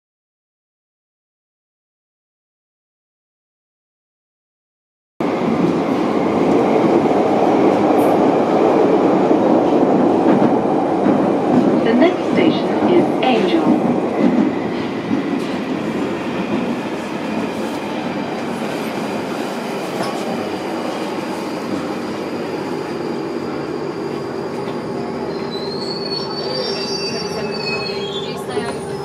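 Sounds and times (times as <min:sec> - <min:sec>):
train wheels rumbling on rails: 0:05.2 - 0:29.0
high wheel squeal: 0:22.8 - 0:29.0.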